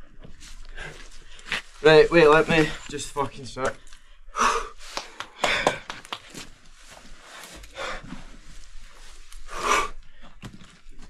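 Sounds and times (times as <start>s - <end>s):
person panting: 4.3s - 6.0s, 7.7s - 8.2s.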